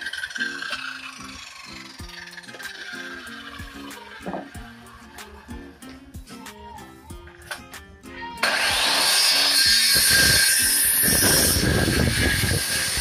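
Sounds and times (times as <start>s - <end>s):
circular saw motor whining: 0.0s - 5.4s, 8.4s - 13.0s
saw blade cutting wood: 0.0s - 5.4s, 8.4s - 13.0s.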